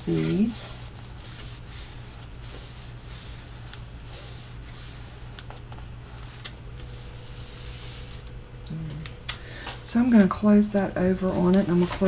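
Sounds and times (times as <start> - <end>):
low electrical hum: 0.0 - 12.0
paper cards rustling: 0.1 - 8.3, 11.2 - 12.0.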